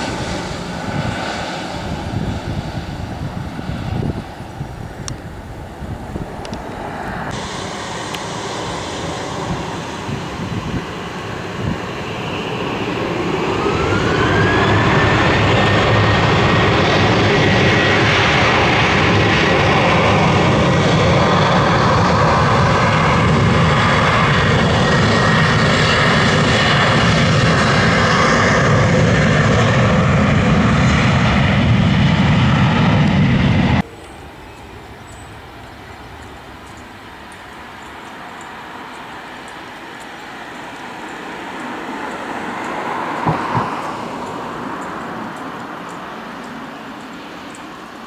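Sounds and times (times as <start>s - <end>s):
jet engines passing close: 0.0s - 48.0s
high fan whine: 33.6s - 48.0s.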